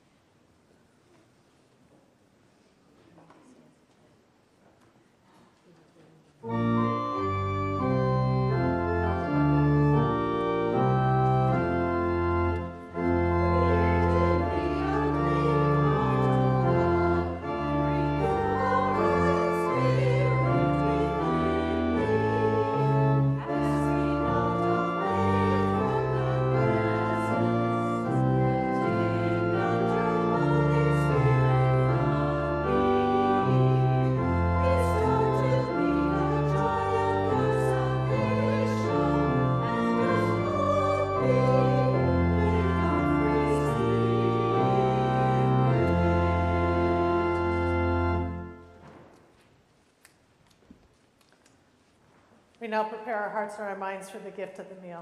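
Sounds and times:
pipe organ playing chords: 6.4s - 48.9s.

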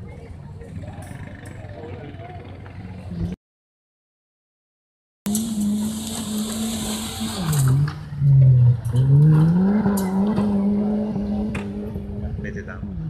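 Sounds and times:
car engine revving: 5.3s - 13.0s.

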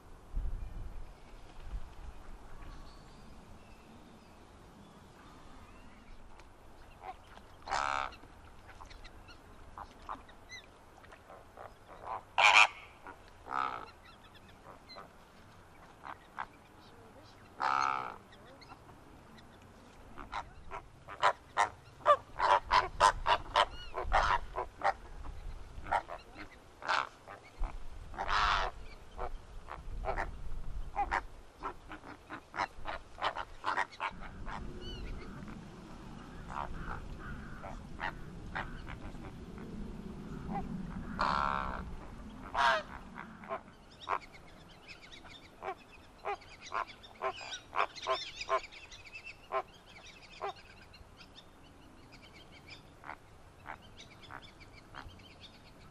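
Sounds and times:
flamingos honking: 11.2s - 14.0s, 20.1s - 25.2s, 25.8s - 30.3s, 30.9s - 39.4s, 40.4s - 44.4s.

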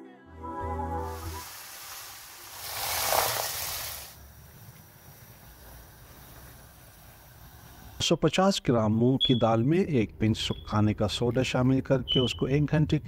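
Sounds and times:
music: 0.0s - 1.6s
loud hiss: 1.0s - 8.0s
faint steady noise: 1.1s - 13.0s.

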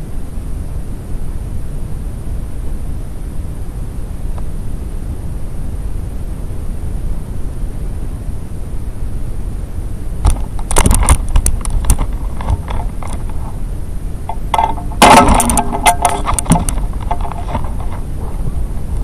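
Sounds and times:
steady low rumble: 0.0s - 19.0s
clattering clicks: 14.3s - 18.0s
payload rattling and knocking: 14.3s - 18.1s.

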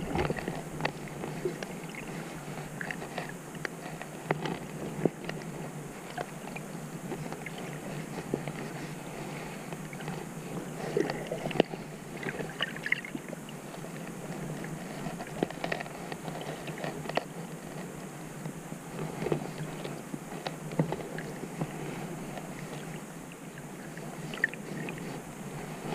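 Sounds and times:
muffled underwater water rush: 0.0s - 25.9s
sharp underwater clicks and crackles: 0.0s - 25.9s.

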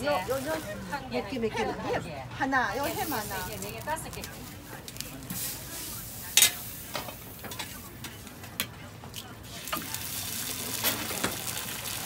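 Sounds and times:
food sizzling on griddle: 2.8s - 4.2s, 4.9s - 7.8s, 9.4s - 12.0s.

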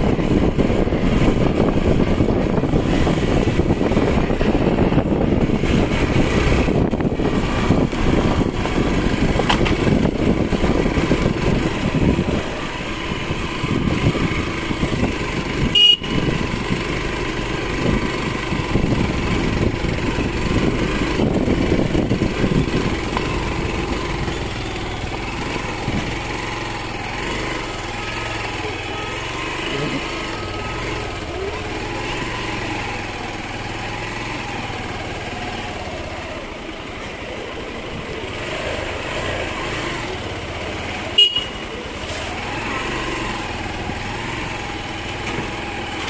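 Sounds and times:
motorcycle engine running: 0.0s - 46.0s
wind and road rumble: 0.0s - 46.0s.

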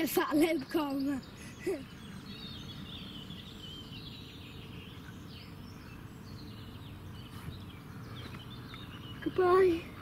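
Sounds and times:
low outdoor background noise: 0.0s - 10.0s
small birds chirping: 0.0s - 10.0s.

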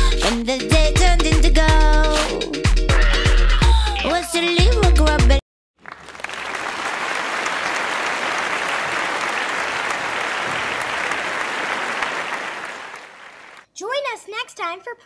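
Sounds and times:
music: 0.0s - 5.4s
audience applauding: 5.8s - 13.6s.

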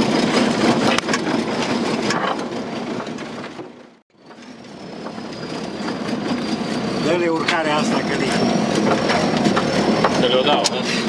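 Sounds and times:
off-road vehicle engine: 0.0s - 11.0s
vehicle body rattling: 0.0s - 11.0s.

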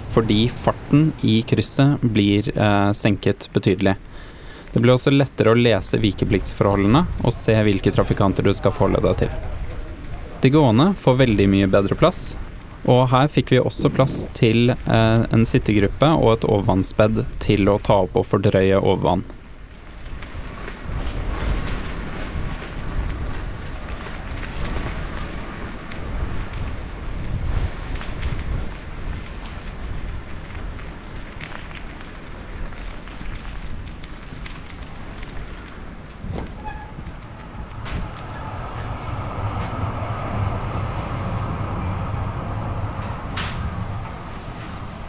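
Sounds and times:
wind buffeting microphone: 5.7s - 17.5s, 20.1s - 45.0s
vehicle rumble: 19.4s - 45.0s.

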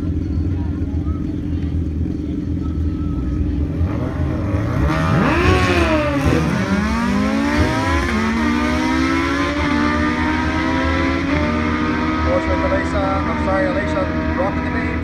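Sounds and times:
motorcycle engines revving hard: 3.4s - 15.0s.

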